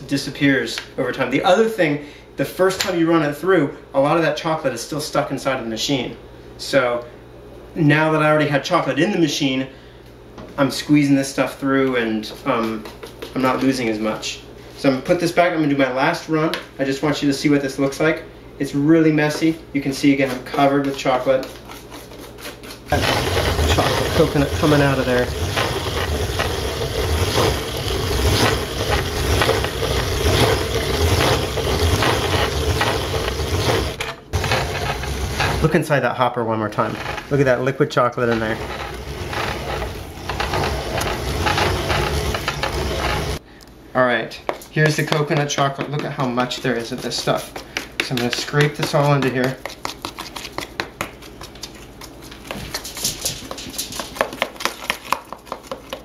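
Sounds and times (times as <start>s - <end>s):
paste scraped from plastic bowl: 20.2s - 35.8s, 36.8s - 37.6s, 38.2s - 43.4s, 46.4s - 50.8s
hand-cranked grinder grinding: 22.9s - 35.8s, 36.7s - 43.4s.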